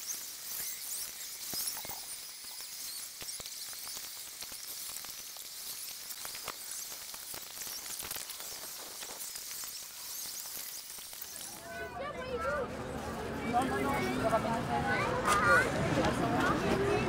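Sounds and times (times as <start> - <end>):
crackling hissing noise: 0.0 - 11.9.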